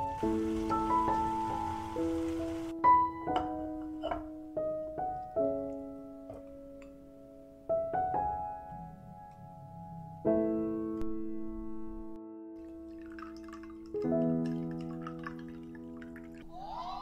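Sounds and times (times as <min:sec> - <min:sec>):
soft solo piano: 0:00.0 - 0:16.4.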